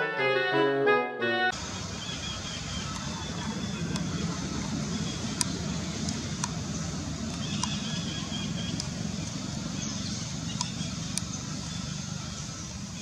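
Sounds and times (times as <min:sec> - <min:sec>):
low outdoor rumble: 0:01.6 - 0:13.0
faint clicks: 0:02.9 - 0:06.6, 0:07.3 - 0:07.8, 0:08.7 - 0:09.4, 0:10.5 - 0:11.4.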